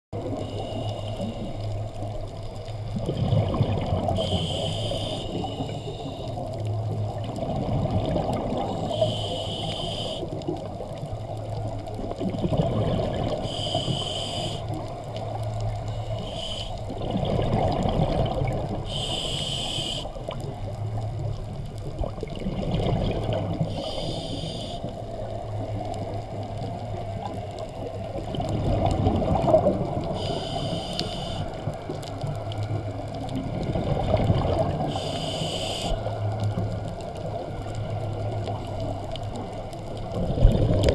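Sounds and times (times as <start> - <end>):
exhaled bubbles rumbling underwater: 0.2 - 40.9
regulator breathing hiss: 0.3 - 2.9, 4.2 - 6.5, 8.7 - 10.4, 13.3 - 17.0, 18.8 - 20.4, 23.7 - 25.7, 30.0 - 31.8, 34.8 - 36.3.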